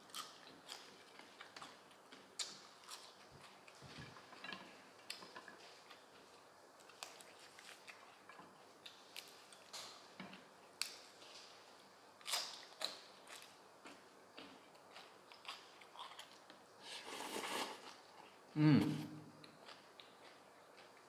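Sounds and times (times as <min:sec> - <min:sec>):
chewing raw vegetables crunching: 0:00.0 - 0:09.9, 0:12.2 - 0:16.6, 0:19.4 - 0:21.0.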